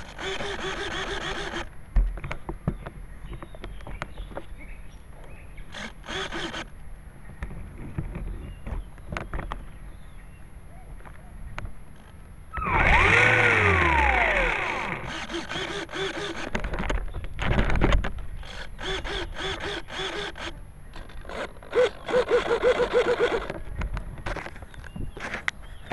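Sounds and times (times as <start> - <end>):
model plane motor and propeller: 0.0 - 1.7, 5.7 - 6.7, 12.6 - 24.6.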